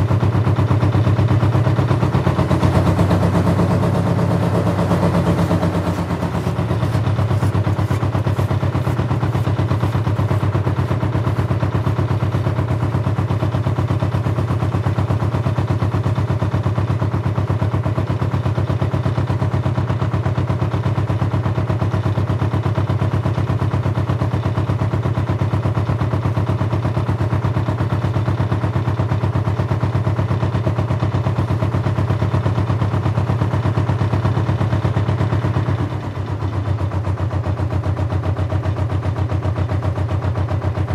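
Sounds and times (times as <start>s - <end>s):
boat engine running: 2.3s - 13.6s.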